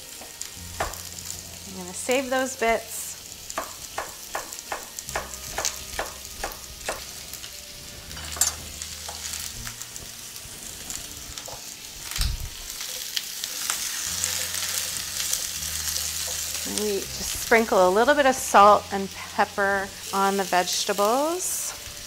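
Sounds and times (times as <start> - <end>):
vegetables sizzling in a skillet: 0.0 - 22.0
spatula stirring a pan: 3.2 - 12.0, 12.7 - 17.8
knife chopping on wooden board: 3.6 - 7.1.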